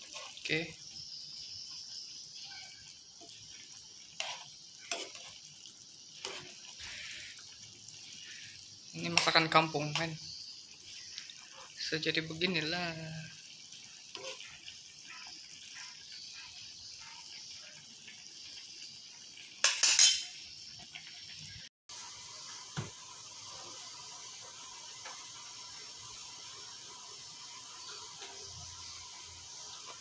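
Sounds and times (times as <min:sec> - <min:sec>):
soup simmering hiss: 0:00.0 - 0:30.0
metal spoon clattering on pan: 0:19.6 - 0:20.4.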